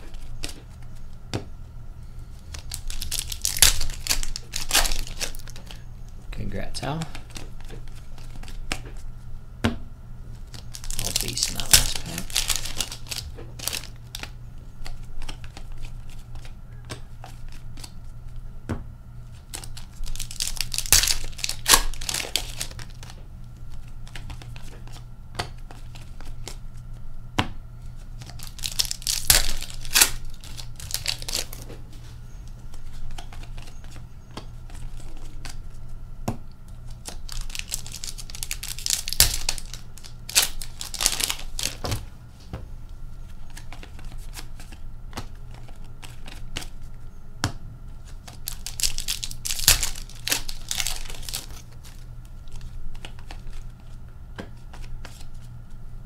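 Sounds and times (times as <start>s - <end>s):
steady low hum: 0.0s - 56.0s
foil wrappers tearing and crinkling: 2.5s - 5.8s, 10.4s - 16.5s, 19.4s - 23.2s, 28.2s - 31.6s, 36.9s - 42.0s, 48.0s - 54.0s
cards clicking and sliding: 48.2s - 55.5s.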